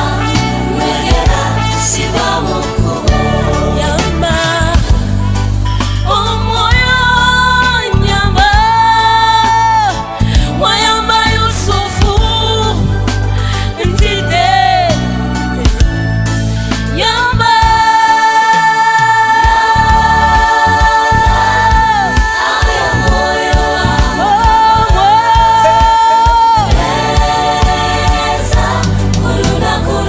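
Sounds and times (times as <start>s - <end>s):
choir singing: 0.0s - 4.9s, 17.0s - 30.0s
band with drums: 17.6s - 30.0s.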